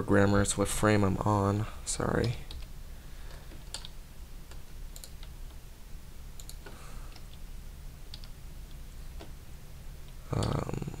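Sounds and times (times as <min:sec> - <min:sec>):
mouse and keyboard clicks: 0:03.3 - 0:05.6.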